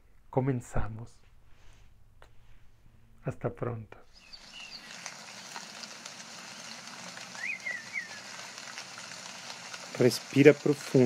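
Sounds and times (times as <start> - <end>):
bird calling: 4.1 - 9.6
hiss of falling water: 4.1 - 11.0.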